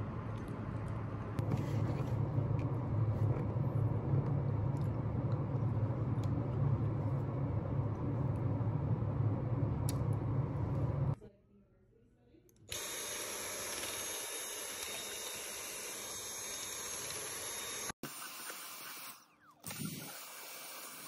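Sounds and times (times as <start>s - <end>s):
low rumbling background noise: 0.0s - 12.6s.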